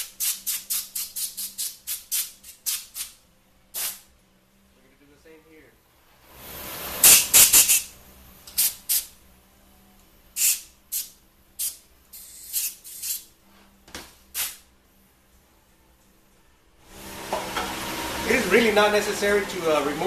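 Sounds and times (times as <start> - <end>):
compressed air blow gun blasts: 0.0 - 4.1, 7.0 - 7.9, 10.4 - 13.3, 14.3 - 14.7.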